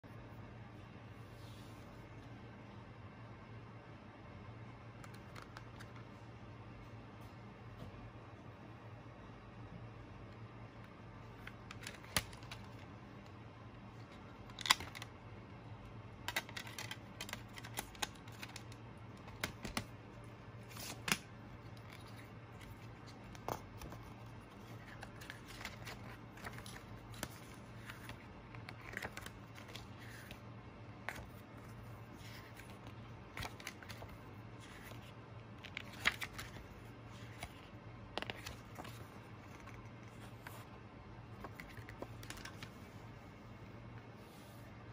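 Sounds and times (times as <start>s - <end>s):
steady low hum: 0.0s - 44.9s
paper rustling: 16.2s - 20.0s, 20.6s - 40.7s, 41.3s - 43.0s.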